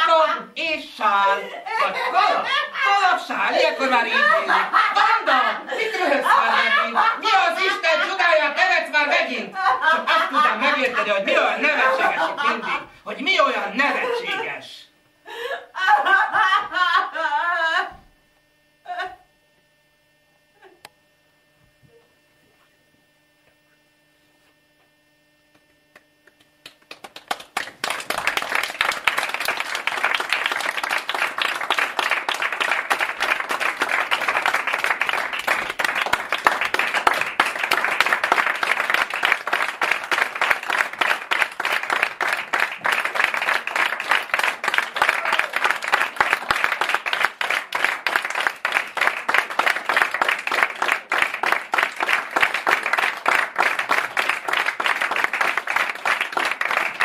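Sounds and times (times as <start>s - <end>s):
faint electrical hum: 0.0s - 57.0s
audience applause: 26.6s - 57.0s.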